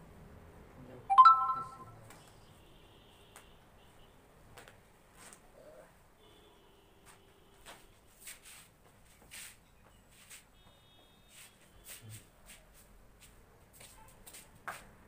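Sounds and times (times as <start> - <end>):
flip-flops scuffing on concrete: 7.0 - 15.0.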